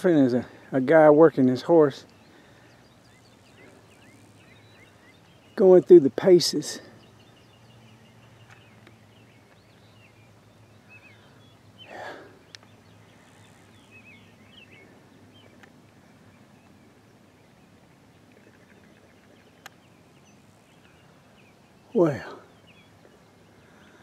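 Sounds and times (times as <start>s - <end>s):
distant birds chirping: 0.0s - 24.0s
soft rush of noise: 0.0s - 24.0s
faint click: 12.5s - 12.7s.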